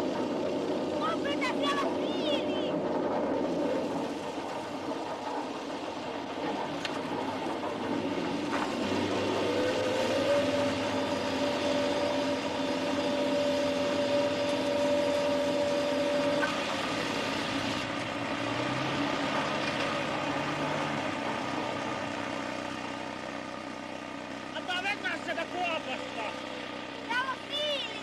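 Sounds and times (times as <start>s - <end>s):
mechanical rumbling: 0.0s - 18.4s
long horn-like tone: 10.2s - 16.6s.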